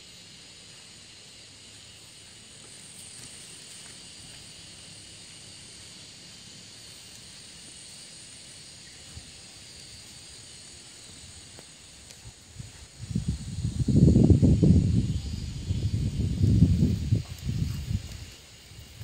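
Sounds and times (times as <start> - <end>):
insects hissing: 0.0 - 19.0
low wind rumble: 12.2 - 19.0.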